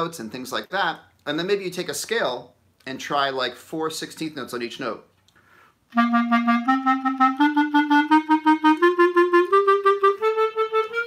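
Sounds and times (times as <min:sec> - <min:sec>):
clarinet playing tongued scale: 0:05.9 - 0:11.0.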